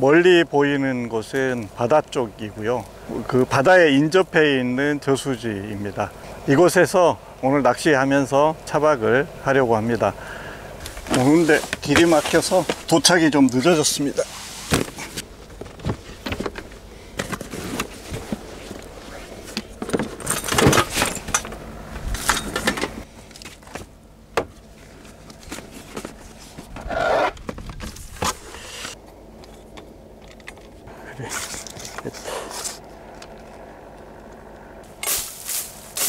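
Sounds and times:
rustling: 34.9s - 36.0s.

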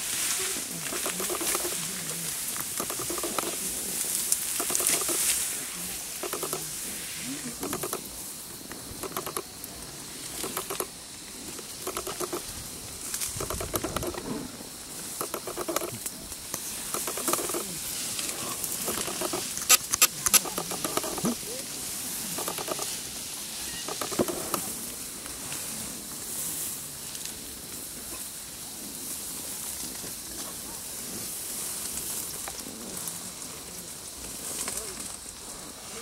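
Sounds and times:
tall grass rustling: 0.0s - 36.0s
short calls: 16.8s - 24.6s.

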